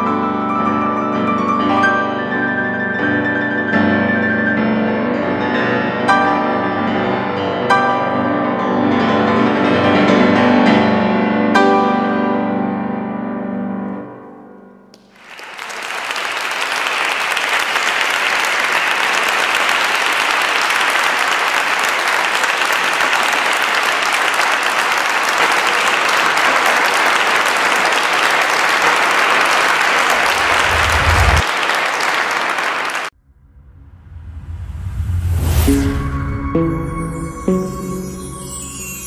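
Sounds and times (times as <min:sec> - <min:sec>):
audience applauding: 0:15.0 - 0:33.1
piano chord ringing: 0:35.7 - 0:39.0.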